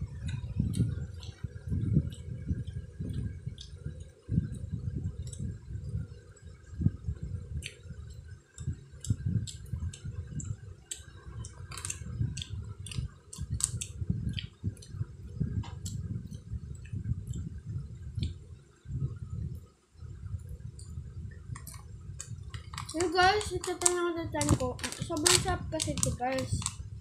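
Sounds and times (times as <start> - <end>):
boy chewing food: 0.0 - 6.4, 7.6 - 17.6, 20.5 - 26.9
wet mouth clicks and smacks: 7.6 - 15.0, 18.2 - 18.4, 21.6 - 23.1.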